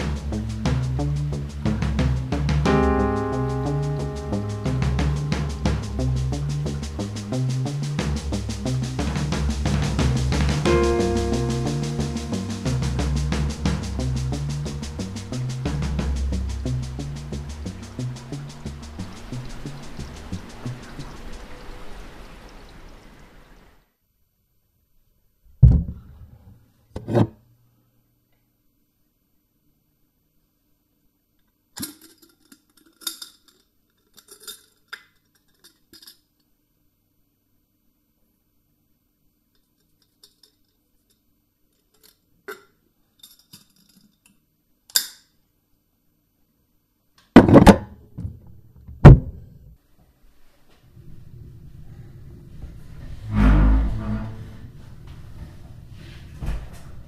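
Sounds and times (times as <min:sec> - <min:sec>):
rain hiss: 0:00.0 - 0:23.9
faint low hum: 0:00.0 - 0:42.2, 0:47.8 - 0:57.0
heavy thuds: 0:47.4 - 0:49.7.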